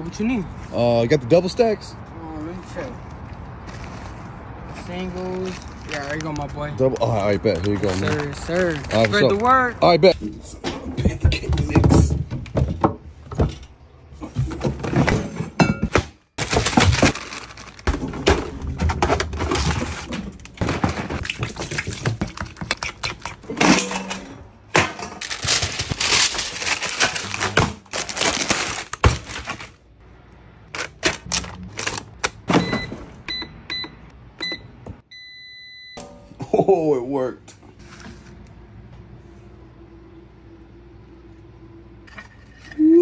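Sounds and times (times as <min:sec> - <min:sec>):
short beeps: 0:32.6 - 0:36.2.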